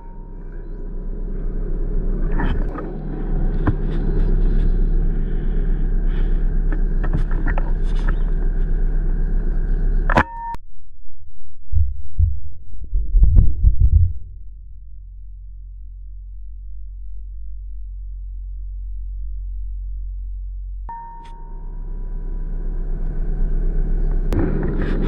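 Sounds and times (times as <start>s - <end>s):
low rumble: 0.0s - 25.0s
clicks: 10.1s - 10.6s
deep heartbeat-like thumps: 11.0s - 20.9s.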